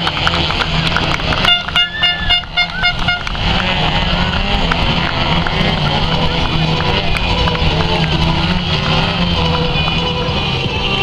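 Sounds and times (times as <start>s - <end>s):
model plane engines running: 0.0s - 11.0s.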